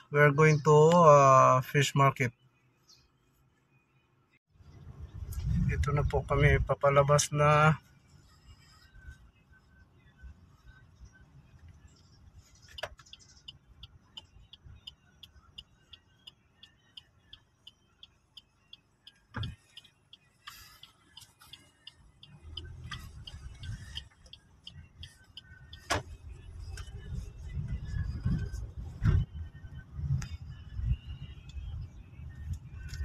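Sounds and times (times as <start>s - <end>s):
engine and road rumble: 0.0s - 33.0s
turn signal ticking: 10.4s - 33.0s.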